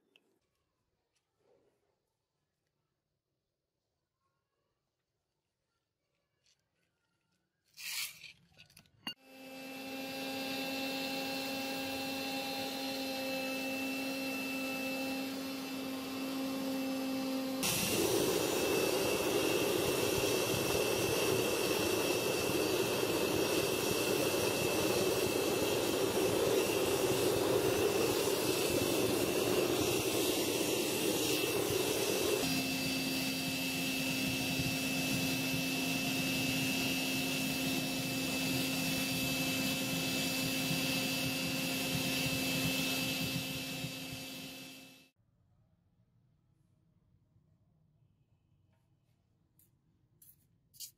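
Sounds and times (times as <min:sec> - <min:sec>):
air blower motor hum: 0:09.3 - 0:45.0.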